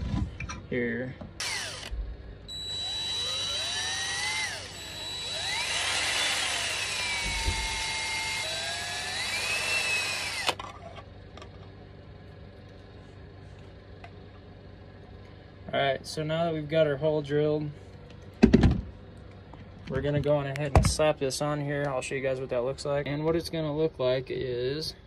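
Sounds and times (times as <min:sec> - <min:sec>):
cordless drill whining: 0:01.4 - 0:10.6
drill trigger click: 0:02.5 - 0:10.6.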